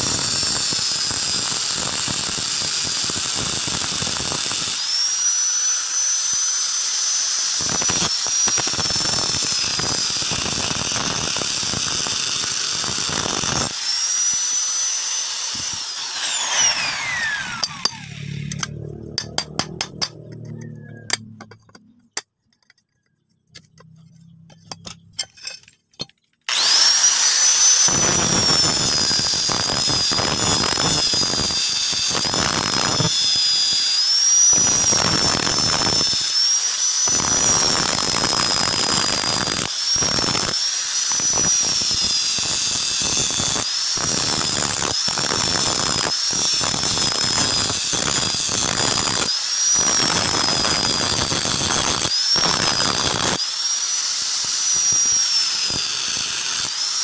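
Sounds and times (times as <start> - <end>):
angle grinder whining: 0.0 - 57.0
disc grinding steel: 0.0 - 57.0.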